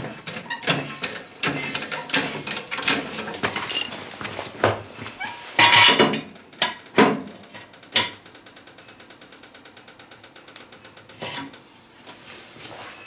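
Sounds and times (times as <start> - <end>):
metal knocks and clanks: 0.0 - 3.9, 5.6 - 8.2.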